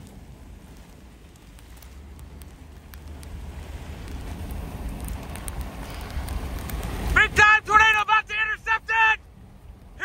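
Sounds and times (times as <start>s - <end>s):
raindrops ticking on glass: 0.0s - 7.2s
storm wind and rain on vehicle: 0.0s - 10.0s.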